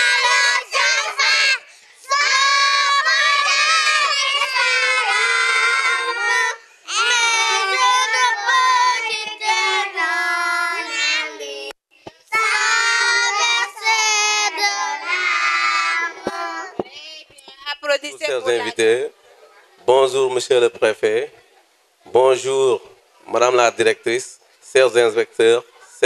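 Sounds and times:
children singing into microphones: 0.0s - 16.8s.

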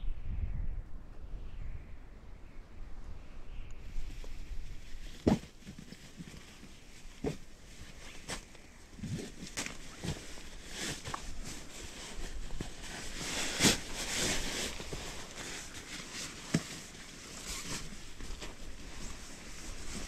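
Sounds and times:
sleeping bag rustling: 4.1s - 20.0s.

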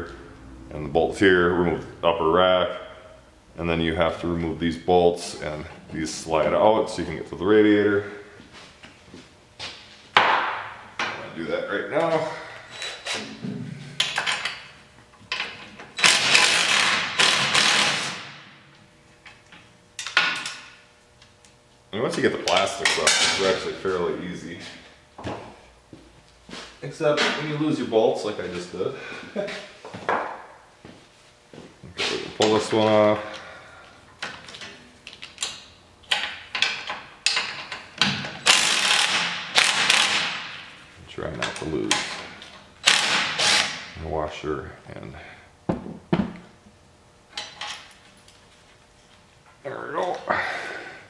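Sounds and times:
cordless drill running: 16.0s - 18.2s, 38.5s - 40.2s, 42.8s - 43.8s
power driver removing bolts: 35.4s - 40.4s.

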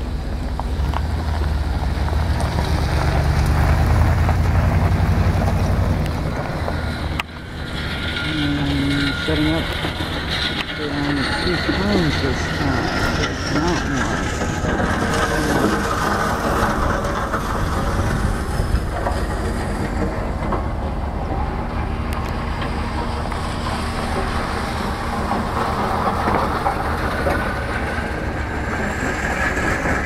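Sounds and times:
wind buffeting microphone: 0.0s - 30.0s.

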